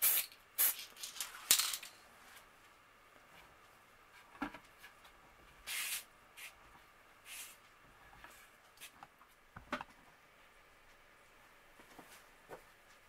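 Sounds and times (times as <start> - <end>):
spray paint hissing: 0.0 - 1.2, 5.7 - 6.5.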